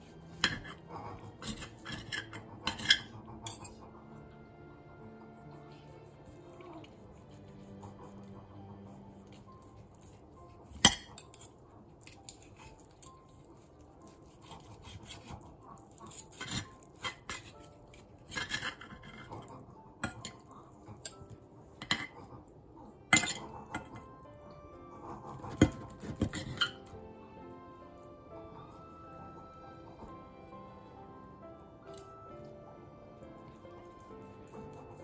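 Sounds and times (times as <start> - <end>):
cutlery clinking on a plate: 0.4 - 0.8, 1.4 - 3.8, 18.3 - 19.3, 20.0 - 20.4, 21.0 - 22.2, 23.1 - 24.0, 25.5 - 26.9.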